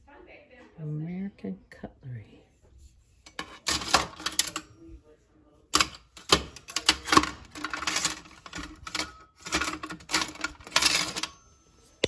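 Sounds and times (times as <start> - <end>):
flatware clattering in a jar: 3.2 - 4.8, 5.8 - 11.5.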